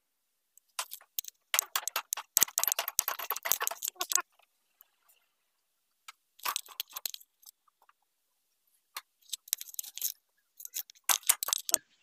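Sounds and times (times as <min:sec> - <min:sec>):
metallic clinks and rattles: 0:00.8 - 0:04.3, 0:06.4 - 0:07.6, 0:09.2 - 0:11.8.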